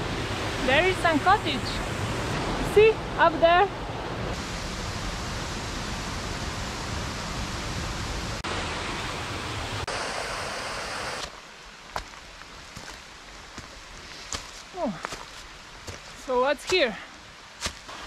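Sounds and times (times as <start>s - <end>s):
stream rushing: 0.0s - 18.0s
light footsteps: 11.9s - 17.0s.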